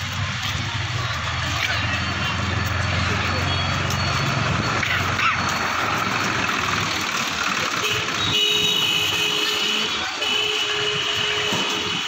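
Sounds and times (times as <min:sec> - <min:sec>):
steady high tone: 0:00.4 - 0:07.5.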